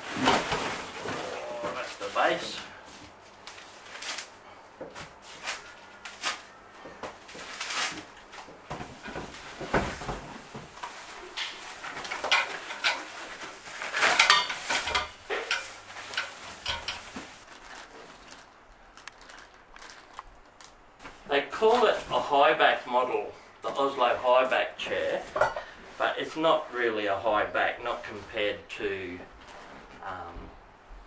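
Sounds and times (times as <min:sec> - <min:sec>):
packaging rustling: 0:10.8 - 0:22.1
metal chair parts clanking: 0:11.3 - 0:17.4.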